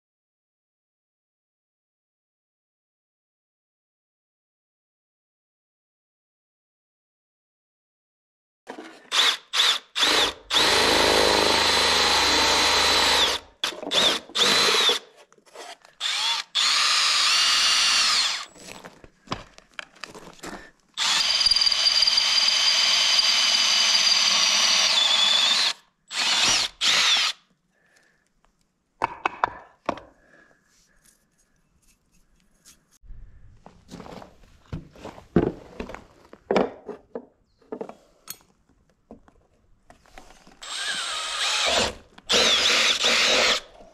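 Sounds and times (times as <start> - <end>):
cordless drill motor whine: 9.1 - 15.0, 16.0 - 18.5, 21.0 - 27.4, 40.6 - 43.6.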